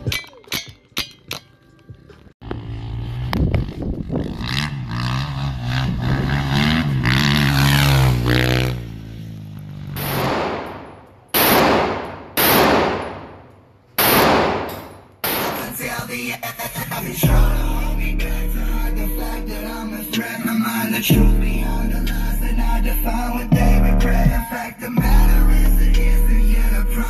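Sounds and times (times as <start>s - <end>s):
dirt bike engine revving: 2.4s - 10.4s
echoing gunshots indoors: 10.0s - 15.8s.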